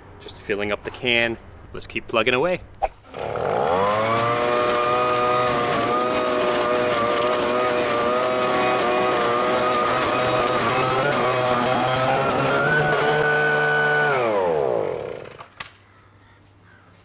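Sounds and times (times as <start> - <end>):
leaf vacuum engine running: 3.0 - 15.5.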